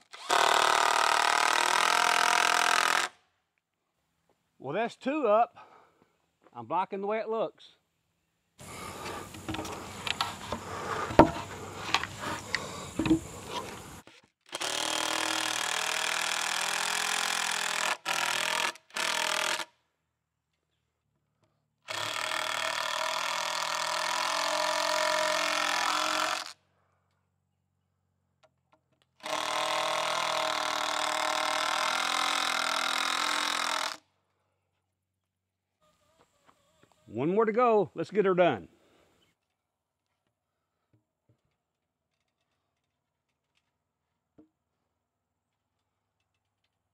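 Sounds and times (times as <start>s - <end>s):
power drill driving fasteners: 0.0s - 3.2s, 8.6s - 19.7s, 21.9s - 26.6s, 29.1s - 34.0s
wood and ladder knocking: 10.4s - 11.5s.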